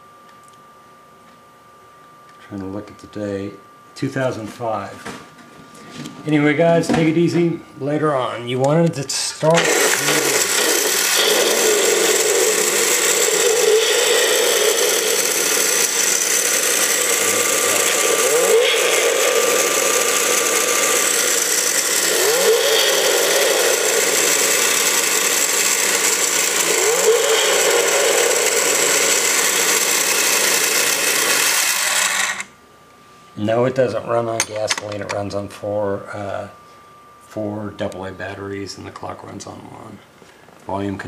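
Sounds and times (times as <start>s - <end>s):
recorded engine revving from small speaker: 9.6s - 32.4s.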